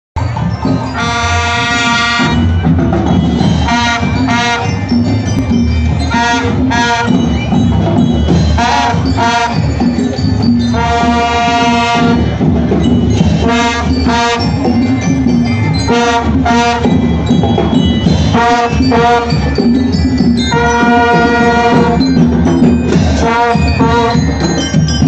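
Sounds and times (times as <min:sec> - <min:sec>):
drums beating: 0:00.2 - 0:25.0
marching band playing: 0:00.2 - 0:25.0
brass long held notes: 0:01.0 - 0:02.4, 0:10.8 - 0:12.3, 0:13.4 - 0:14.6, 0:20.5 - 0:22.1.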